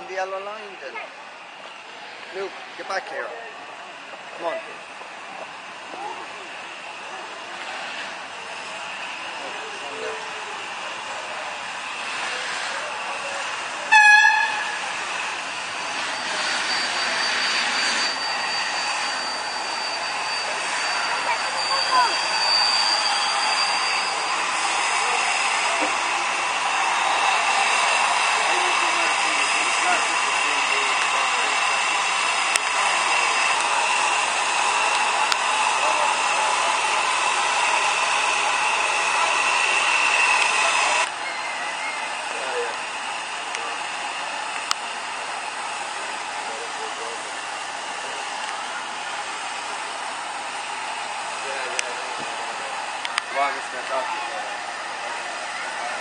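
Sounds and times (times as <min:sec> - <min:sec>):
locomotive hiss and rumble: 0:00.0 - 0:56.0
steam locomotive whistle: 0:12.0 - 0:42.4.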